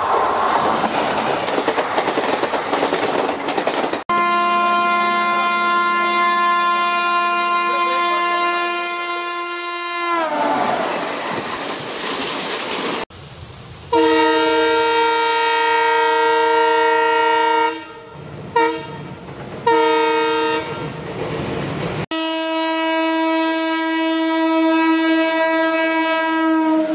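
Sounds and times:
wheels rumbling on bridge: 0.0s - 4.1s, 10.5s - 13.2s, 18.2s - 19.7s, 20.7s - 22.1s
train clattering by: 0.0s - 4.2s, 10.5s - 13.1s, 18.3s - 22.1s
diesel locomotive horn blasts: 4.1s - 10.9s, 13.9s - 21.0s, 22.1s - 26.9s
train horn: 4.1s - 10.9s, 13.9s - 21.0s, 22.1s - 26.9s.

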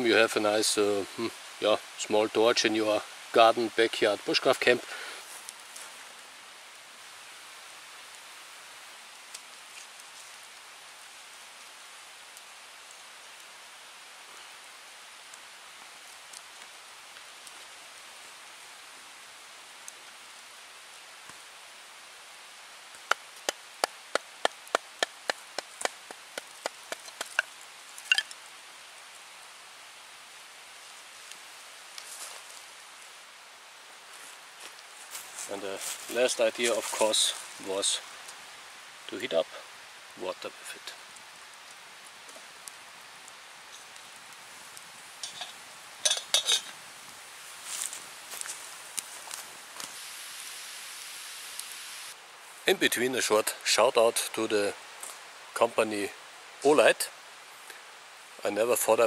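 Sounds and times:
faint steady hiss: 0.0s - 59.0s
sharp clicks of sparks struck: 23.0s - 28.4s
metal kettle clinking: 45.2s - 46.7s.

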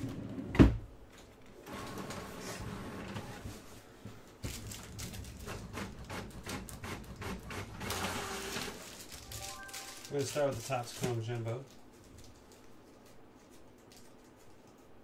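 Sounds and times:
printer whirring: 6.9s - 8.8s.

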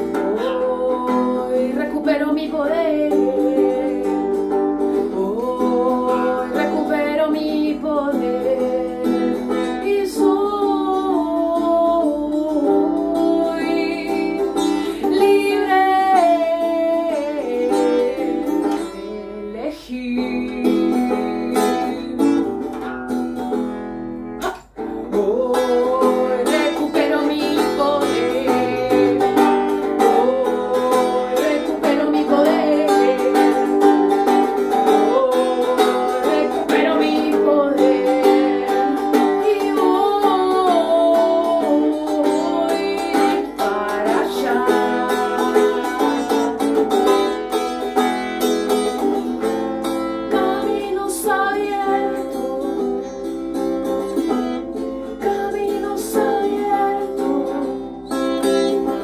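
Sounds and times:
strummed guitar: 0.0s - 59.0s
woman singing: 0.0s - 59.0s.

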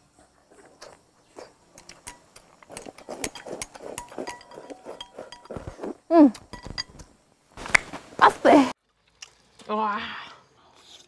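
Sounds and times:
chewing: 0.2s - 6.5s.

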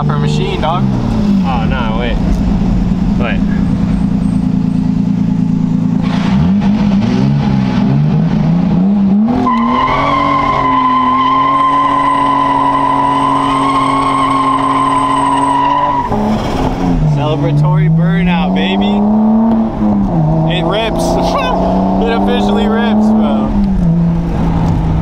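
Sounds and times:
car engine revving: 0.0s - 25.0s
tyres squealing: 9.4s - 16.3s.

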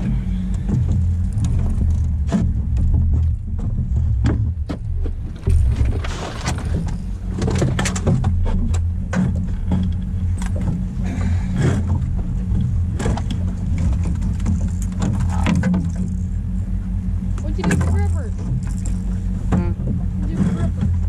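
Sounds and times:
fishing gear clicks and knocks: 0.0s - 10.8s, 11.5s - 16.3s
outboard motor running: 0.0s - 21.0s.

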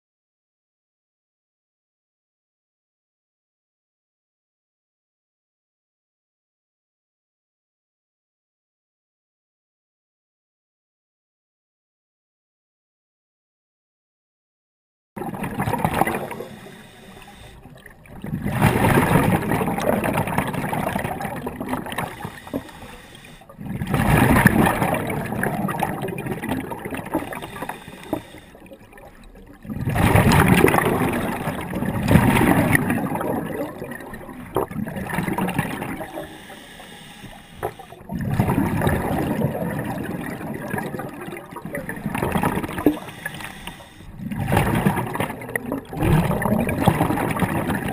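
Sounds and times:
underwater breath bubbling: 15.2s - 47.9s.

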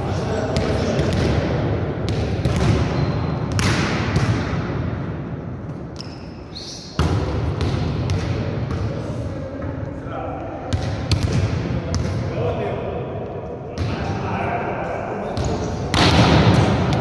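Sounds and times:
volleyballs smacking and bouncing: 0.5s - 4.8s, 7.0s - 9.0s, 15.3s - 17.0s.

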